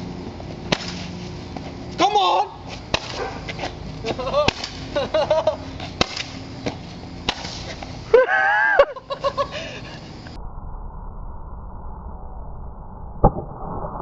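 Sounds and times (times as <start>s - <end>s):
person yelling: 2.0s - 2.6s
person laughing: 4.0s - 5.7s, 8.1s - 10.3s.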